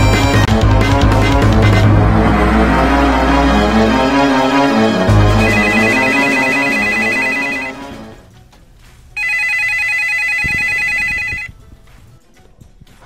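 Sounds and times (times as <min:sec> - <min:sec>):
background music: 0:00.0 - 0:13.0
telephone ringing: 0:05.4 - 0:08.1, 0:09.2 - 0:11.6.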